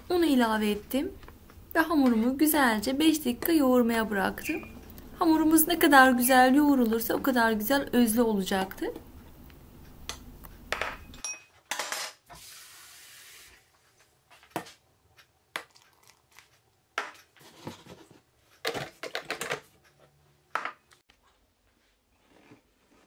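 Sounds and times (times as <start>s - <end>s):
hiss of ingredients pouring: 12.4s - 13.6s.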